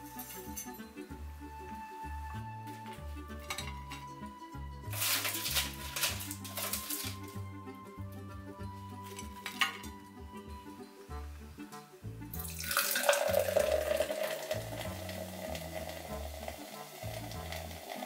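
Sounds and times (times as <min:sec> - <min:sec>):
background music: 0:00.0 - 0:18.0
fizzy drink pouring into glass: 0:12.4 - 0:18.0.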